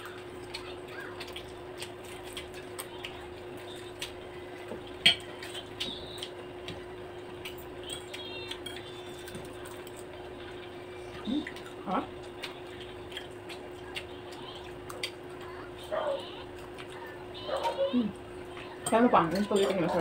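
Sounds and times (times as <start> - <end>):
low steady hum: 0.0 - 20.0
cutlery tapping on plates: 5.0 - 5.9.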